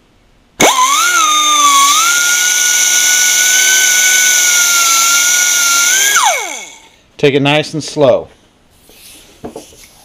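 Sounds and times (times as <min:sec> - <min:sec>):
cut-off tool high whine: 0:00.6 - 0:07.0.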